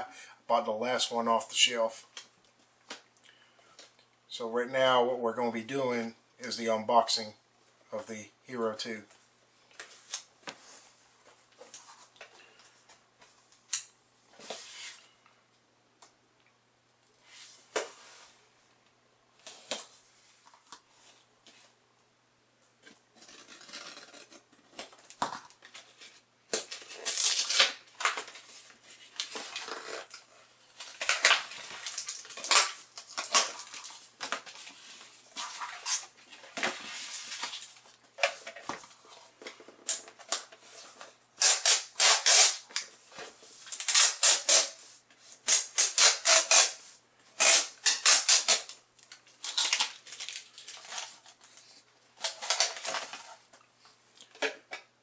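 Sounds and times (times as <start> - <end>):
plastic packaging crinkling: 26.6 - 36.5, 47.4 - 53.5.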